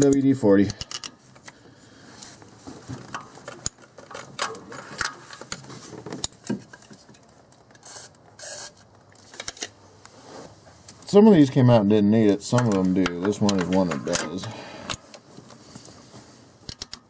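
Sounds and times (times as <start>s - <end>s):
hand tools and metal parts clinking: 0.0s - 1.6s, 12.5s - 15.0s
faint rustling: 9.1s - 16.6s.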